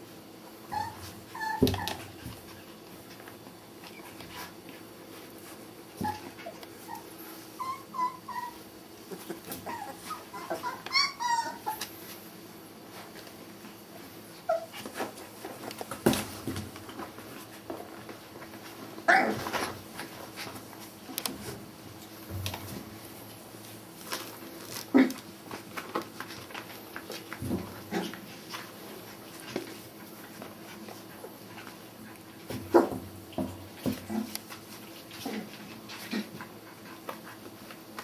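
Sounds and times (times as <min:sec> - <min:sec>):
puppies whimpering and yipping: 0:00.6 - 0:02.6, 0:06.0 - 0:12.1, 0:14.4 - 0:14.8.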